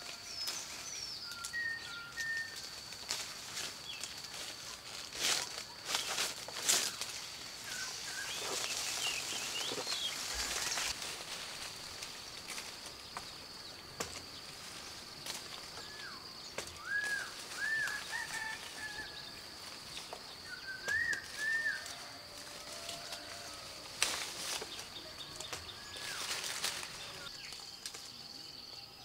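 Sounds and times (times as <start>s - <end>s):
leafy branches rustling: 0.0s - 28.4s
bird whistling: 1.2s - 2.6s, 16.8s - 18.5s, 20.5s - 21.9s.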